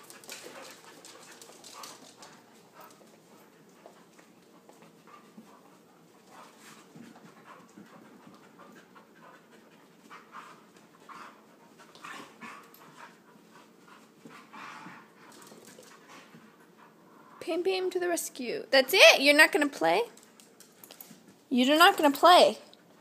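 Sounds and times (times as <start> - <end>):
dog panting: 0.0 - 17.4.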